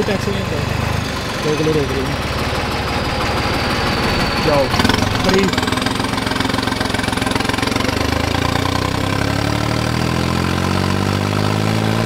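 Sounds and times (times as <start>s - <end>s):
tractor diesel engine accelerating: 0.0s - 12.0s.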